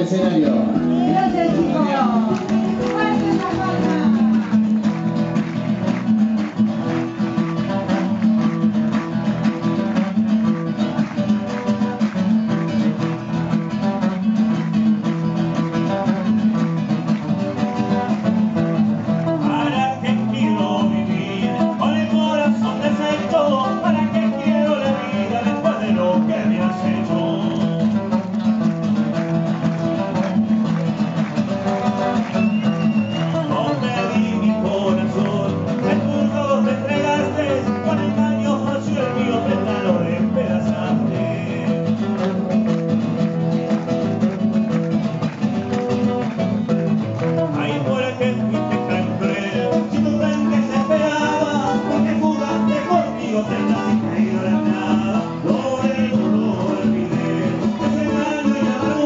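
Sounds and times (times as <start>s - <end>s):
man singing: 0.0s - 4.8s, 19.2s - 28.1s, 33.2s - 42.3s, 47.4s - 59.0s
acoustic guitars strumming: 0.0s - 59.0s.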